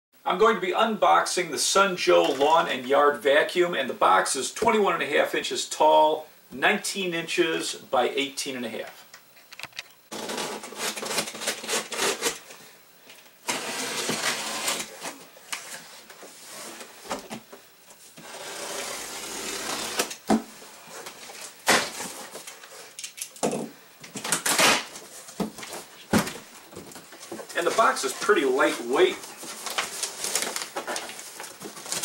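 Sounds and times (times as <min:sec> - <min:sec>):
packing tape tearing off cardboard: 0:10.1 - 0:12.6, 0:13.4 - 0:17.5, 0:18.1 - 0:32.0.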